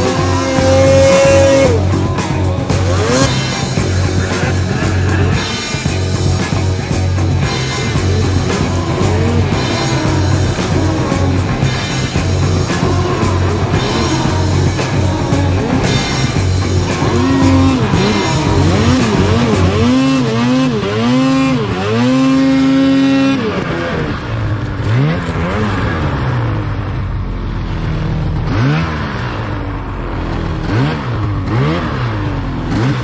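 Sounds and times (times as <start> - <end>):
snowmobile engine revving: 0.0 - 33.0.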